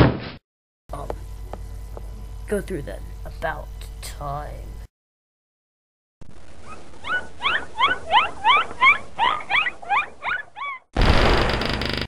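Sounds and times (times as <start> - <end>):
loud burst of noise: 11.0 - 12.0.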